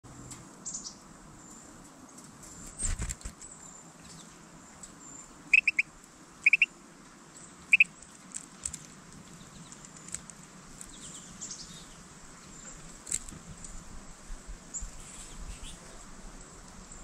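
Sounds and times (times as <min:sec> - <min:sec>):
faint high bird chirp: 0:00.1 - 0:01.7, 0:05.0 - 0:06.7, 0:07.4 - 0:08.0
sharp bird ticks: 0:05.5 - 0:06.7, 0:07.7 - 0:11.7.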